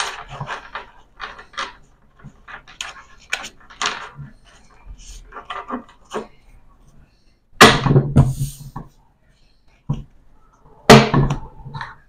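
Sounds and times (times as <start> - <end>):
playing cards rustling and clicking: 0.0 - 6.4.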